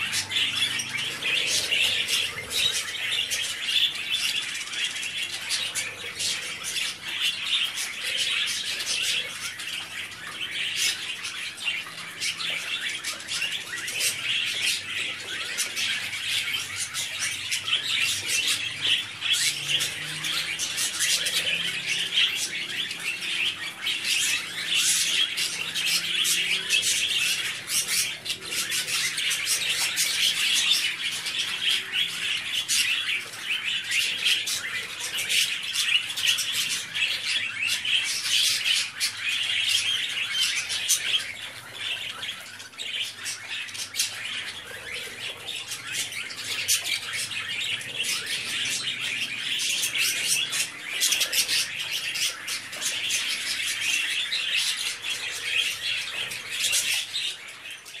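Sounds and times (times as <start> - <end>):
budgerigars chattering: 0.0 - 58.0.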